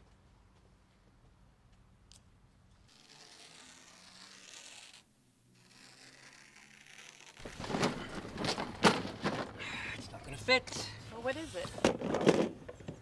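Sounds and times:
scraping and rustling: 7.3s - 9.7s.

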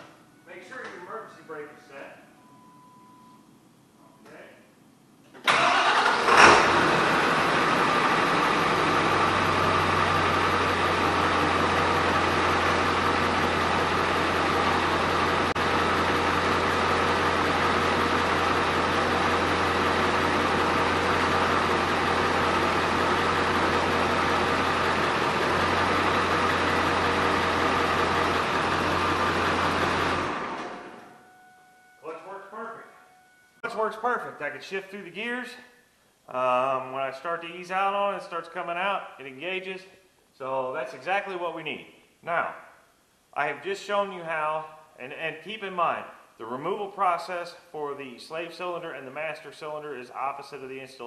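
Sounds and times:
diesel engine idling: 5.5s - 32.2s.

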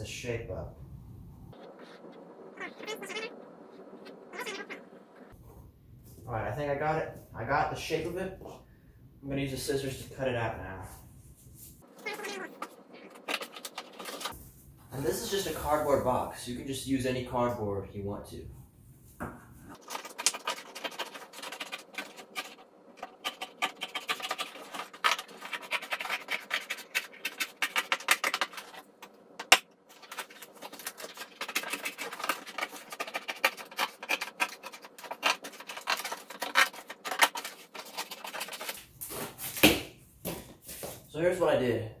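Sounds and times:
scissors cutting cardboard: 30.0s - 39.7s.

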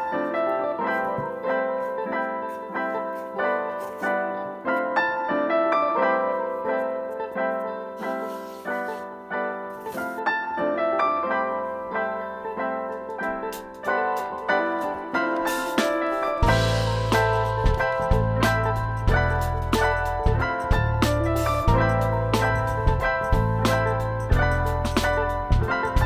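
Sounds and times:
piano music: 0.0s - 26.0s.

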